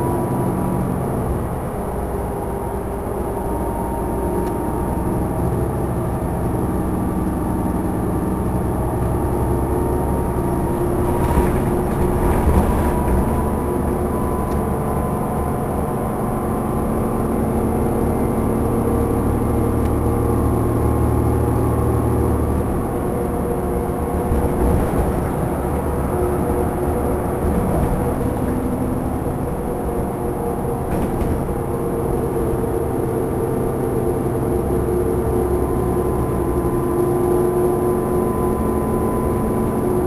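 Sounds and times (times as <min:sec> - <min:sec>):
bus engine drone: 0:00.0 - 0:40.0
bus jolts: 0:06.2 - 0:37.2
tyre and road noise: 0:09.9 - 0:15.9, 0:19.2 - 0:34.2.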